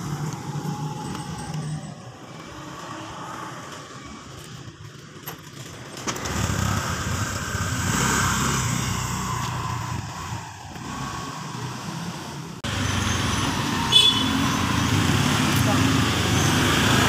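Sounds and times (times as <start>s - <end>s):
scooter engine revving: 5.6s - 17.0s.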